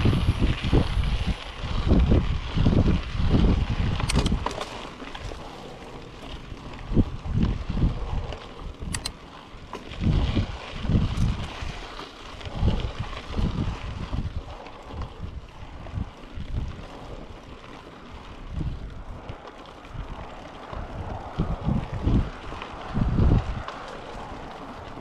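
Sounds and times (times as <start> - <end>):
bike tyres hissing on dirt: 0.0 - 25.0
wind buffeting microphone: 0.0 - 25.0
sharp clicks: 4.0 - 4.8, 8.8 - 9.2.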